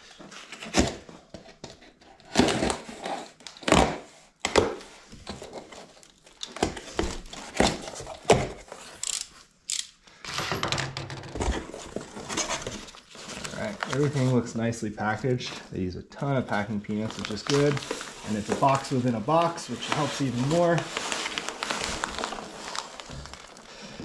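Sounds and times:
cardboard flaps ripping open: 0:16.9 - 0:23.7.

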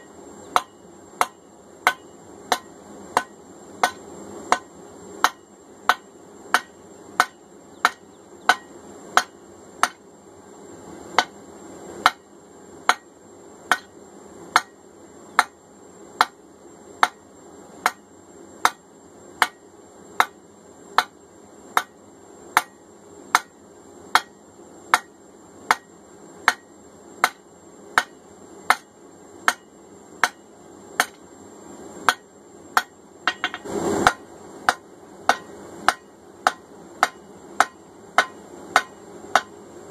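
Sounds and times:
hammer striking metal on anvil: 0:00.5 - 0:10.0, 0:11.2 - 0:11.4, 0:12.9 - 0:13.1, 0:13.7 - 0:13.9, 0:14.5 - 0:14.8, 0:19.4 - 0:19.6, 0:22.6 - 0:22.8, 0:24.2 - 0:25.1, 0:25.7 - 0:27.4, 0:29.5 - 0:30.4, 0:31.0 - 0:31.2, 0:32.8 - 0:39.5.

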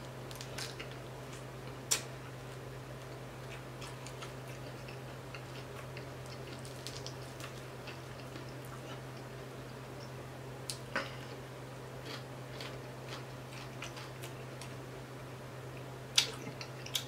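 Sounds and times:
steady low hum: 0:00.0 - 0:17.0
crackles of crisp fish skin: 0:06.5 - 0:07.6.

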